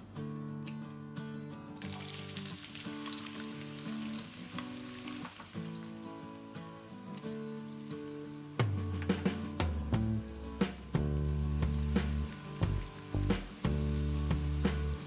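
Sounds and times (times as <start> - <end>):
acoustic guitar music: 0.0 - 15.0
onions sizzling in hot oil: 1.8 - 8.8, 9.4 - 15.0.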